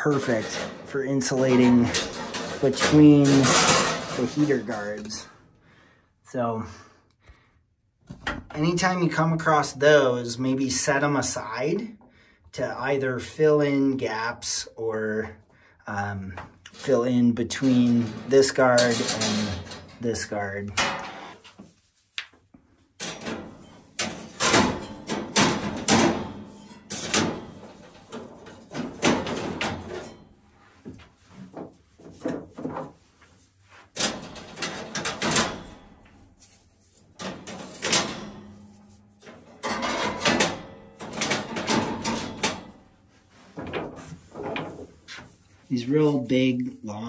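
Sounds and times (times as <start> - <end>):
stones clacking against metal cage: 0.0 - 5.3, 16.7 - 21.6, 23.0 - 30.4, 31.5 - 42.9.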